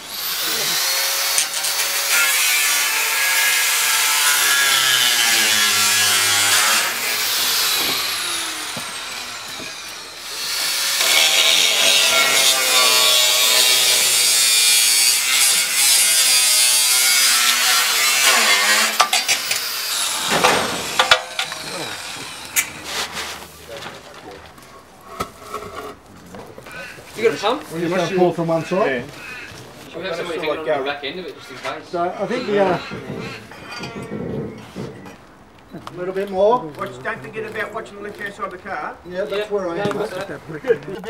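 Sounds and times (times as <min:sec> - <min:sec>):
angle grinder cutting steel: 0:00.0 - 0:23.2, 0:32.2 - 0:34.2.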